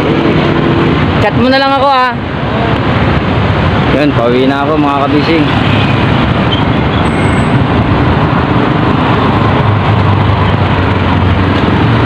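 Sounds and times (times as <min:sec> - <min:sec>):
road noise: 0:00.0 - 0:12.0
wind rush: 0:00.0 - 0:12.0.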